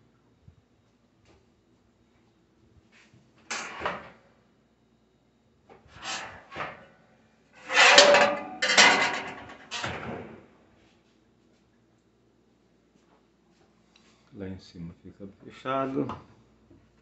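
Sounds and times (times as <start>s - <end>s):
metal racks clattering and scraping: 3.5s - 4.2s, 5.8s - 6.9s, 7.6s - 10.5s
oven door opening and shutting: 3.5s - 4.2s, 5.9s - 6.9s, 7.6s - 10.4s.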